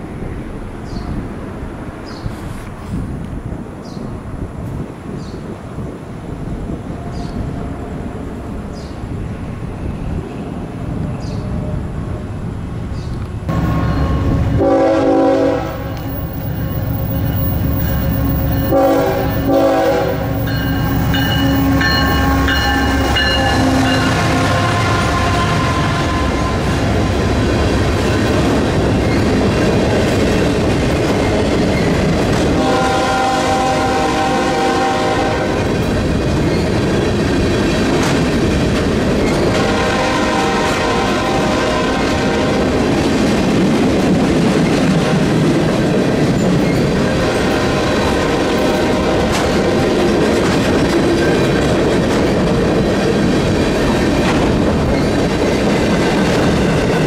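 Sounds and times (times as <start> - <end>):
train wheels rolling on rail: 0.0 - 57.0
locomotive air horn blasts: 13.5 - 16.2, 18.0 - 27.1, 32.6 - 35.6, 39.5 - 42.6.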